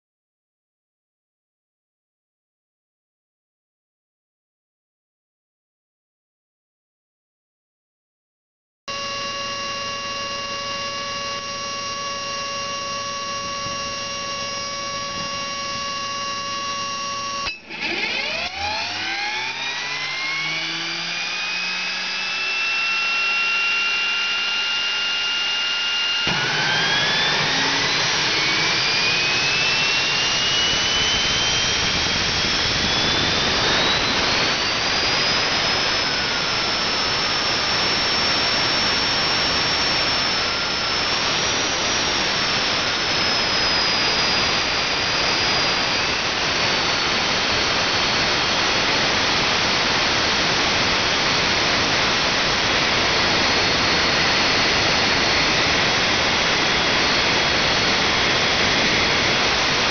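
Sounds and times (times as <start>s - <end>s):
jet turbine whine: 8.9s - 59.9s
jet engine rushing roar: 13.4s - 59.9s.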